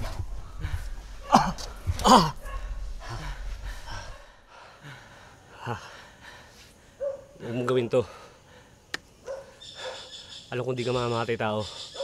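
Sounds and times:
low rumble: 0:00.0 - 0:04.5
gasping breaths: 0:00.0 - 0:07.1
man groaning in pain: 0:01.2 - 0:02.4.

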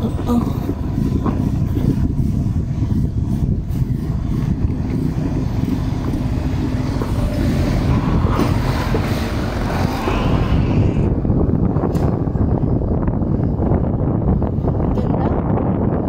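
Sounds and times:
motor scooter running: 0:00.0 - 0:10.4
wind buffeting microphone: 0:00.0 - 0:16.0.

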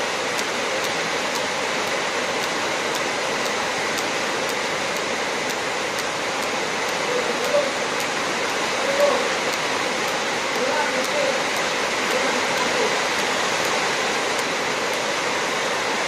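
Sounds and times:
faint sharp ticks: 0:00.0 - 0:15.1
welding arc hissing: 0:00.0 - 0:16.0.

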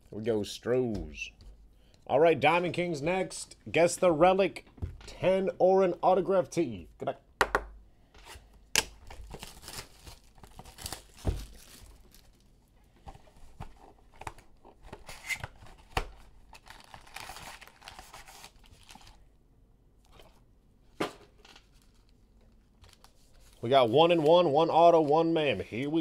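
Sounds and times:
plastic wrap crinkling: 0:08.9 - 0:19.2, 0:21.2 - 0:26.0.

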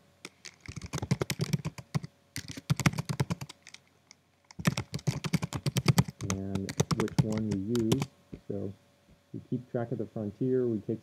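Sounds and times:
fast typing on keyboard: 0:00.3 - 0:03.8, 0:04.5 - 0:08.1.

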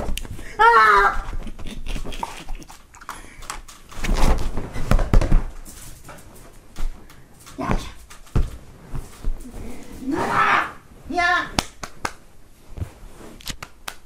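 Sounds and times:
dog playing roughly: 0:00.0 - 0:10.8
bodies rustling on a sofa: 0:03.8 - 0:13.5.

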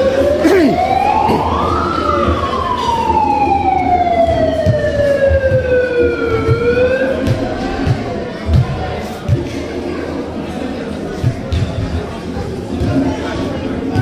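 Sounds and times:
siren wailing: 0:00.0 - 0:07.2.

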